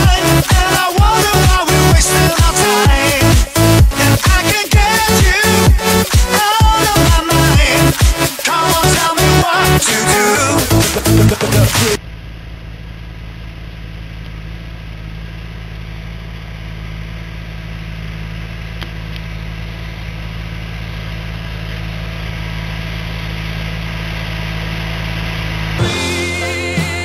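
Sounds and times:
tractor engine running: 0.0 - 27.0.

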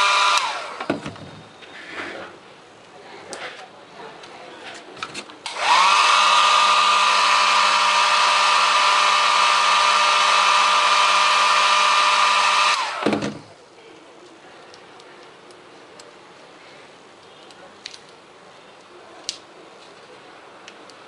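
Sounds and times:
hair dryer blowing: 0.0 - 0.9, 5.5 - 13.1.

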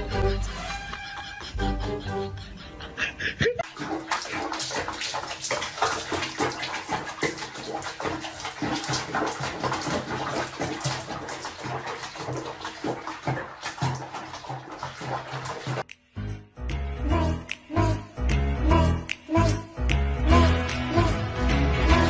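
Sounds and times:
water splashing in a sink: 3.6 - 16.0.

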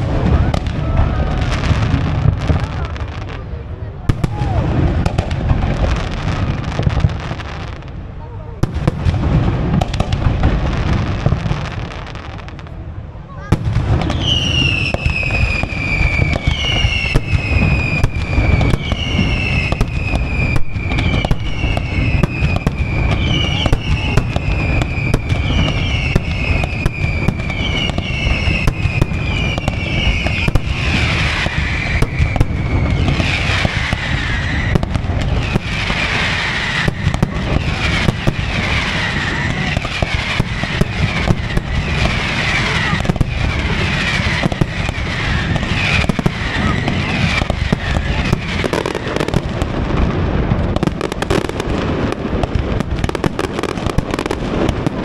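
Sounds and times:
firework bangs: 0.0 - 55.0
firework crackling: 0.0 - 55.0
whistling firework shells: 13.8 - 49.6.

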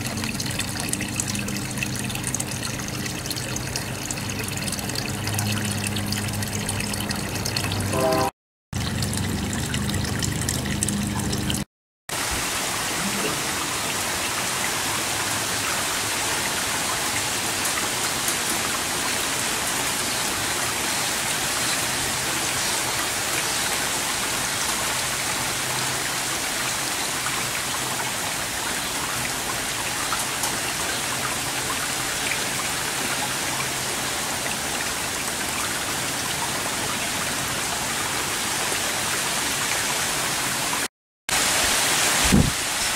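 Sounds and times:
falling water hiss: 41.3 - 42.9.

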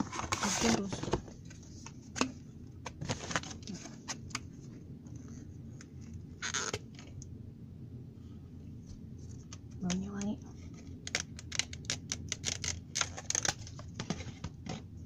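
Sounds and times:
plastic packaging rustling: 3.0 - 4.3, 10.8 - 14.6.

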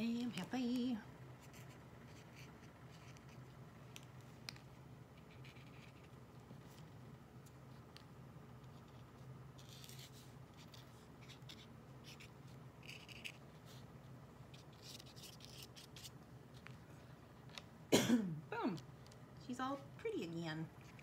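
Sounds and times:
low room hum: 0.0 - 21.0
marker scratching on paper: 1.4 - 3.5, 5.2 - 6.2, 9.6 - 13.8, 14.5 - 16.2.

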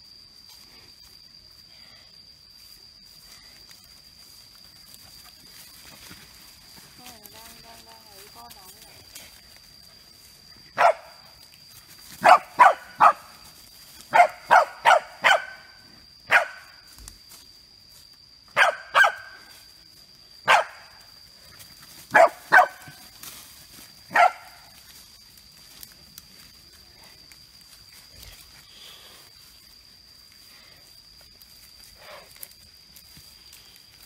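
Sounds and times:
dog barking: 10.8 - 11.2, 12.2 - 13.3, 14.1 - 15.7, 16.3 - 16.7, 18.6 - 19.4, 20.4 - 20.9, 22.1 - 22.9, 24.1 - 24.6.

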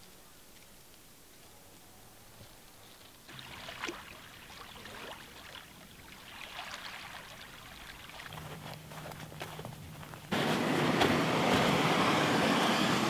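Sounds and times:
small waves lapping on shore: 3.3 - 8.9.

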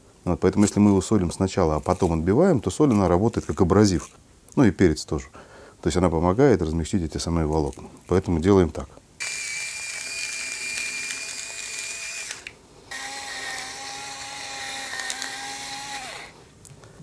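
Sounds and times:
electric grinder whining: 9.2 - 16.4.

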